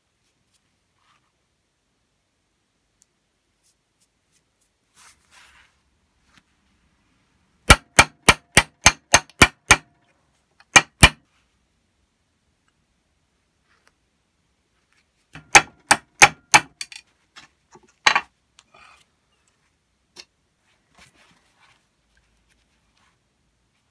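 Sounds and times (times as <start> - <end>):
hammer striking metal punch: 7.7 - 9.9, 10.7 - 11.2, 15.4 - 16.9.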